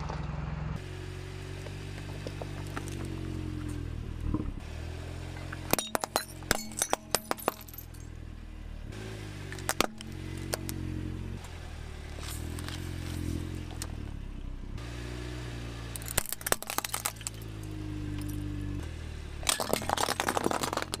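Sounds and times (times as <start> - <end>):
car engine idling: 0.0 - 21.0
plastic cups cracking under tyre: 16.0 - 17.5, 19.4 - 21.0.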